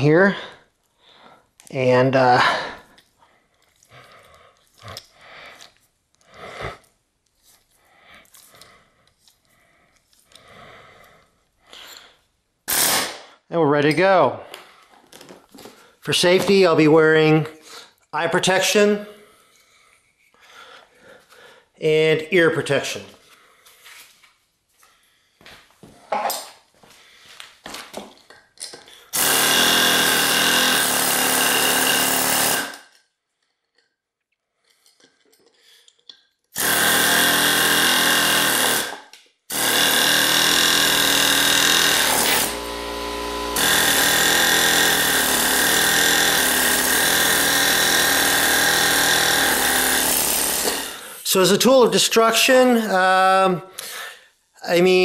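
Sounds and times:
tool handling knocks and rustles: 0:25.5 - 0:26.8
air hammer chipping concrete: 0:29.1 - 0:32.9, 0:36.6 - 0:51.1.

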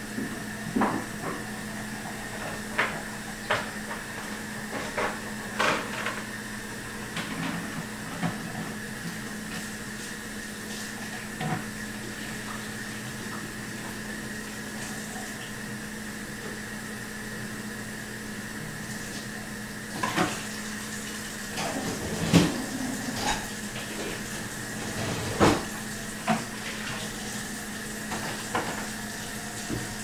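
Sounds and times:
electrical hum with held tones: 0:00.0 - 0:30.0.

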